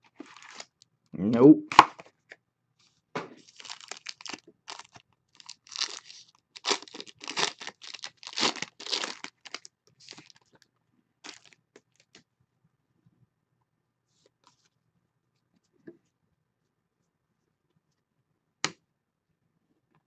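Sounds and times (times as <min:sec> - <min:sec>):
foil wrapper tearing and crinkling: 0:00.0 - 0:00.7, 0:03.4 - 0:10.6, 0:11.2 - 0:11.6.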